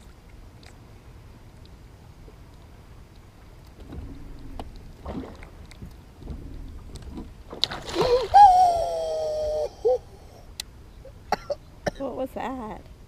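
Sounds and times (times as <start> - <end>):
water and wind noise: 0.0 - 13.0
water splash: 3.8 - 9.1
person yelling: 8.1 - 10.2.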